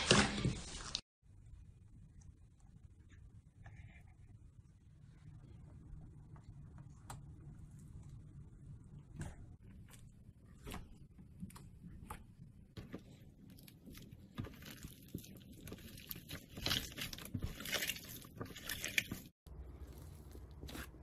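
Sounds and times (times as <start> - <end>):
crunchy slime crackling: 13.8 - 21.0.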